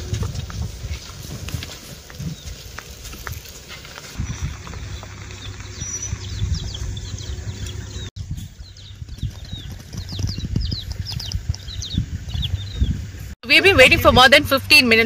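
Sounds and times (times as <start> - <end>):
small birds chirping: 2.1 - 13.2
low thumps and rumble: 4.2 - 14.6.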